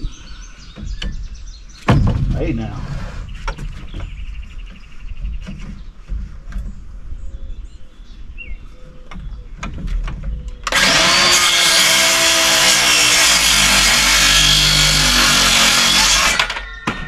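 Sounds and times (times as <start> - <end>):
circular saw cutting wood: 10.7 - 16.6.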